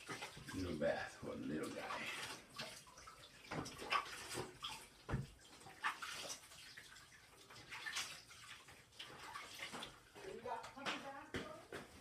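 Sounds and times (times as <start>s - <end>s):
bathwater splashing: 0.0s - 12.0s.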